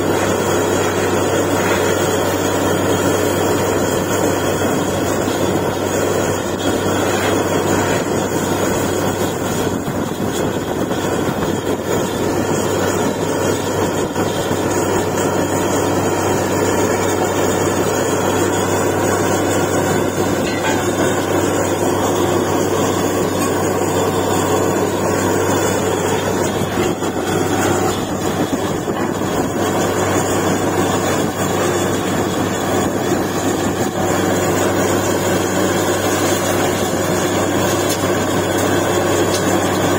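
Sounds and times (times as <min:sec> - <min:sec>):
drilling rig running: 0:00.0 - 0:39.9.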